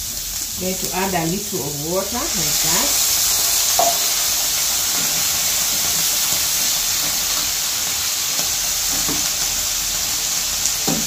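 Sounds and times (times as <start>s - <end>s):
vegetables sizzling in a frying pan: 0.0s - 11.0s
water boiling off into steam: 0.0s - 11.0s.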